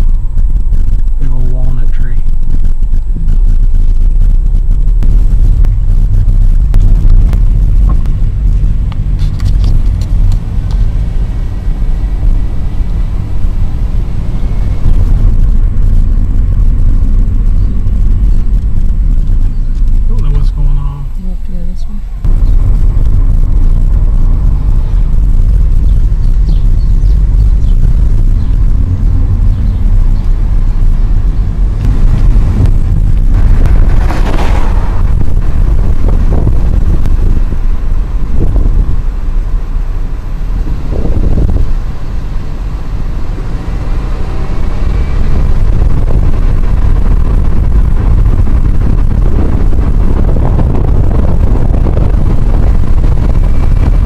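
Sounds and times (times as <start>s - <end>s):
wind buffeting microphone: 0.0s - 21.1s, 22.0s - 54.0s
car road rumble: 0.0s - 54.0s.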